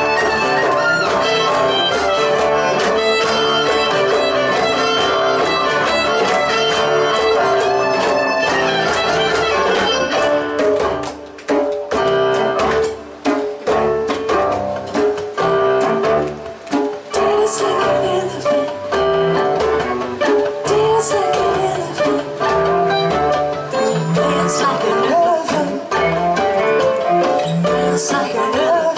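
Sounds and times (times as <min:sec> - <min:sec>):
fiddle melody: 0:00.0 - 0:10.9, 0:21.4 - 0:25.1
band ensemble hits: 0:00.0 - 0:27.9
hand drum: 0:00.0 - 0:28.9.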